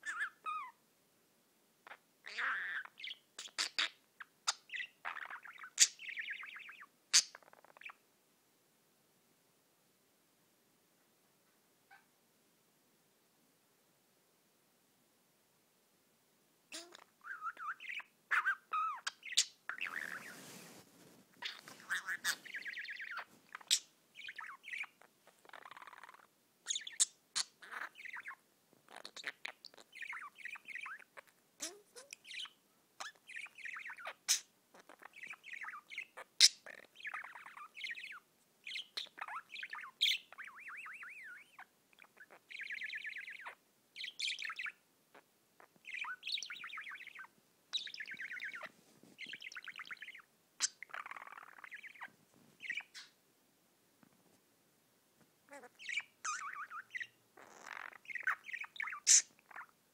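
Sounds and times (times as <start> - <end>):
budgerigar warbling: 21.4 - 28.4, 55.5 - 59.7.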